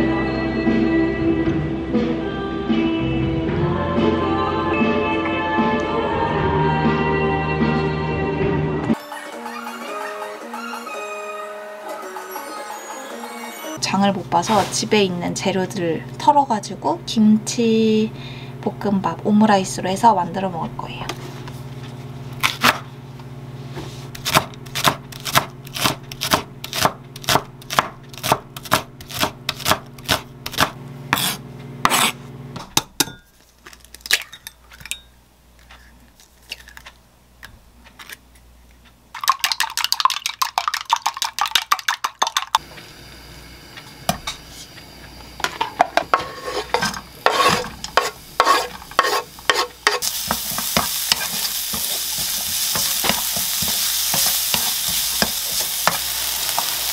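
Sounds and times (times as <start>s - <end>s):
knife chopping on wooden board: 24.2s - 32.2s, 46.1s - 56.0s
eggs beaten in glass cup: 39.1s - 42.6s
leek sizzling in oil: 42.6s - 56.9s.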